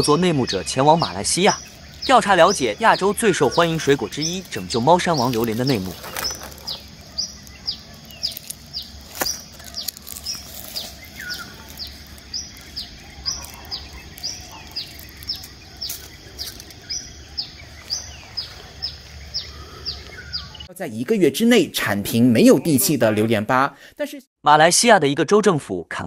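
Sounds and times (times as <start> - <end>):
bird calling: 0.0 - 20.7.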